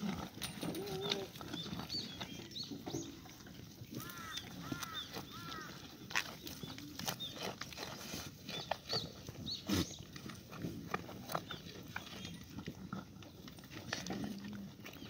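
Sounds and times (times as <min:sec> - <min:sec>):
goats snuffling: 0:00.0 - 0:15.0
goats tearing and crunching stalks: 0:00.0 - 0:15.0.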